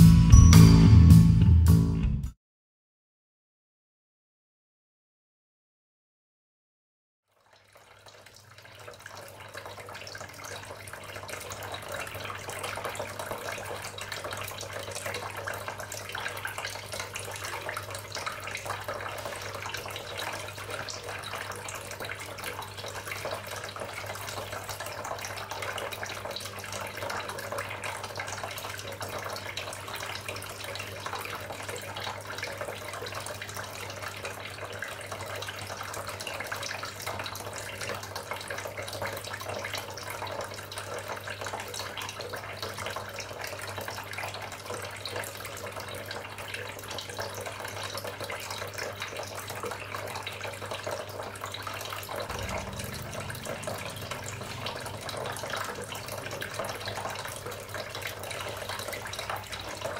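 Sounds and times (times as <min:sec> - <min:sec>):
fountain water trickling: 0:07.3 - 0:59.9
pump humming: 0:50.8 - 0:59.9.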